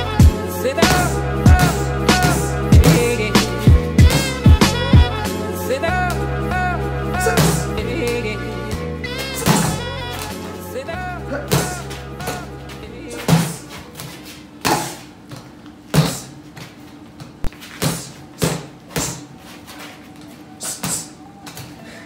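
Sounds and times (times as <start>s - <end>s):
faint background music: 0.0s - 15.1s
punches thudding on a reflex bag: 9.4s - 9.8s, 13.2s - 13.6s, 15.9s - 16.3s, 17.7s - 19.3s.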